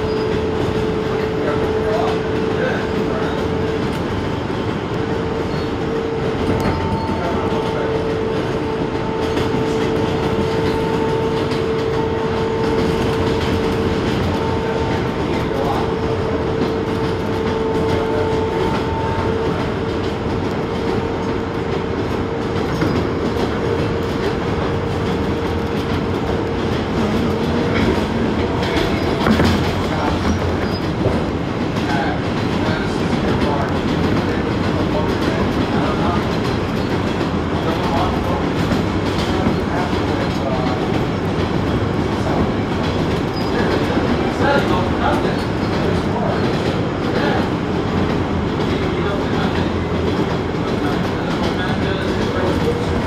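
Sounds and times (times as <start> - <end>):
train wheels rumbling on rail: 0.0 - 53.0.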